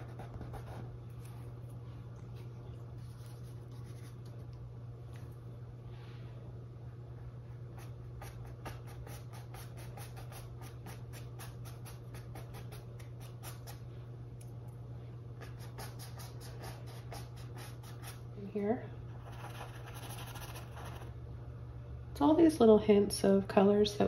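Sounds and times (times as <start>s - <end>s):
paintbrush scratching on canvas: 0.0s - 1.3s, 19.2s - 21.1s
steady low hum: 0.0s - 24.0s.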